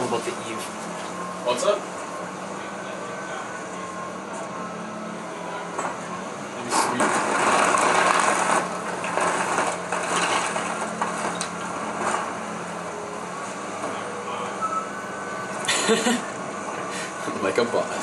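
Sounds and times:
excavator engine humming: 0.0 - 18.0
splintering wood and falling debris: 6.9 - 12.3
wood cracking and crunching: 6.9 - 12.3.

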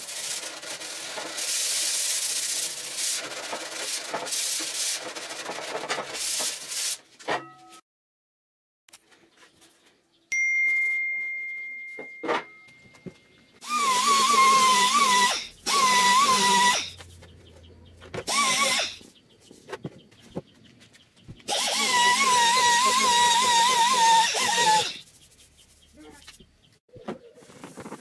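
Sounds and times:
high ringing ding: 10.3 - 13.3
power tool whining: 13.6 - 17.0, 18.2 - 19.0, 21.5 - 25.0.

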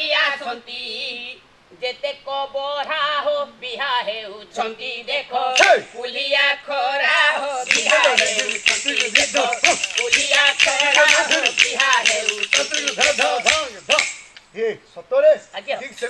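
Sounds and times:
men singing a folk chant: 0.0 - 14.2
wooden hand clappers clacking: 5.6 - 5.8, 7.6 - 14.5
ankle bells jingling: 7.2 - 14.5, 15.7 - 16.0.

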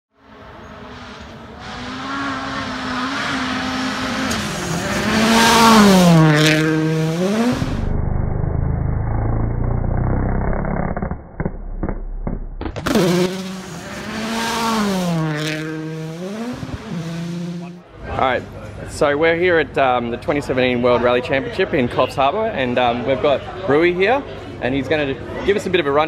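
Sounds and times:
rally car engine passing at high revs: 0.2 - 10.2, 12.8 - 17.9
sharp cracks: 9.6 - 13.8.

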